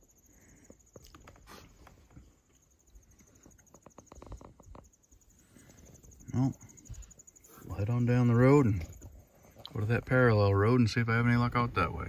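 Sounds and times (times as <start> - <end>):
rapid ticks: 0.6 - 9.8.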